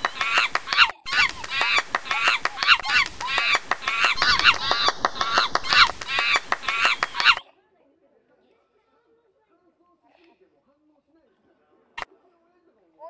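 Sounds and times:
hooting animal calls: 0:00.0 - 0:07.4
rapid sharp clicks: 0:00.0 - 0:07.4.

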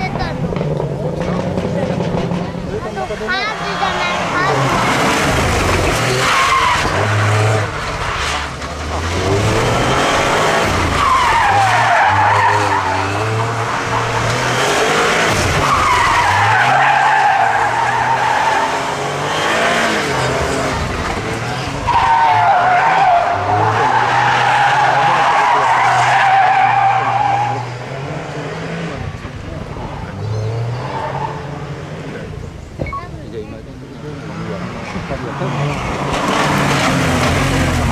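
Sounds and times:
car engine at steady revs: 0:00.0 - 0:16.3
tyres squealing: 0:01.1 - 0:27.7.

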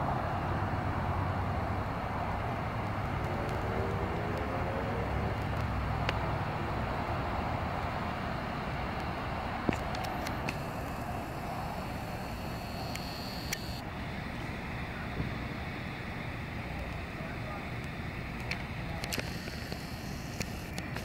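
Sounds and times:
sharp clicks: 0:11.9 - 0:13.8, 0:17.8 - 0:21.0.

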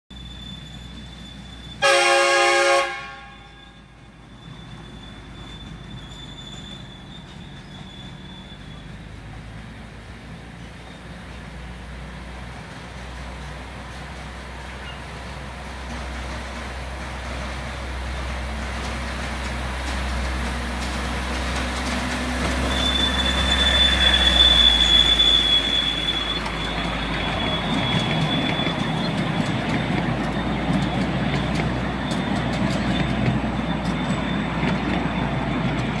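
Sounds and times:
high wheel squeal: 0:00.1 - 0:09.4, 0:13.0 - 0:36.0
miniature train wheels rumbling: 0:10.6 - 0:36.0.

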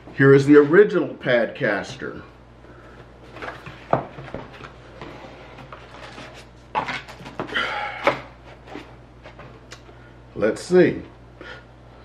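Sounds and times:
cardboard rustling and sliding: 0:03.2 - 0:07.5.

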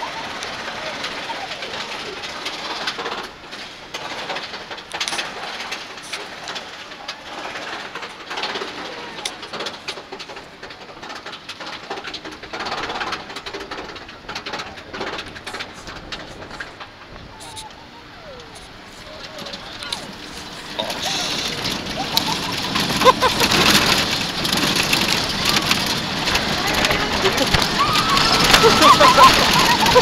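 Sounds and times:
roller coaster car rattling: 0:00.0 - 0:30.0
steady rushing hiss: 0:00.0 - 0:30.0.

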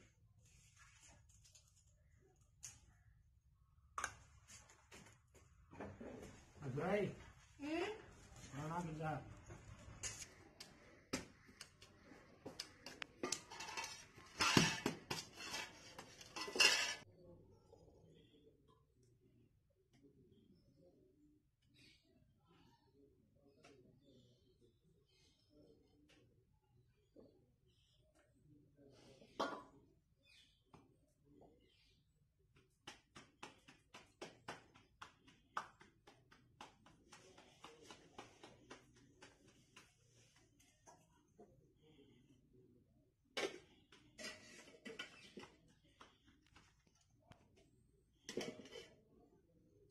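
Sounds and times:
metal plates and bowls clattering: 0:13.2 - 0:17.1.

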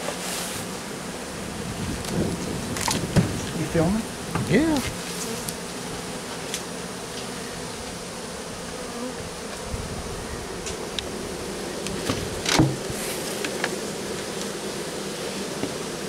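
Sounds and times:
bees buzzing: 0:00.1 - 0:16.0
bucket thump against wood: 0:02.8 - 0:03.5, 0:12.0 - 0:13.7.

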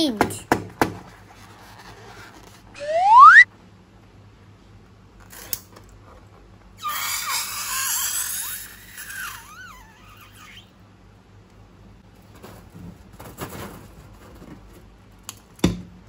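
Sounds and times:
air squealing from balloon: 0:02.8 - 0:03.4, 0:06.8 - 0:10.7.

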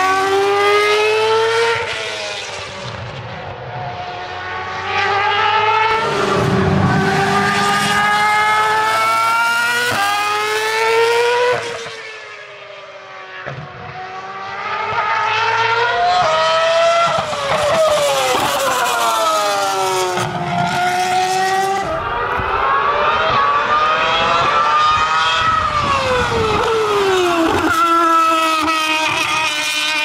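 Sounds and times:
racing car engine revving: 0:00.0 - 0:12.4, 0:13.9 - 0:30.0.

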